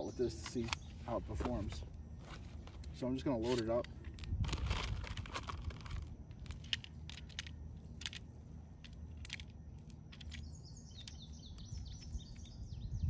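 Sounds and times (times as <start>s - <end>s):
bird chirping: 0.0s - 1.6s, 9.8s - 13.0s
low outdoor rumble: 0.0s - 13.0s.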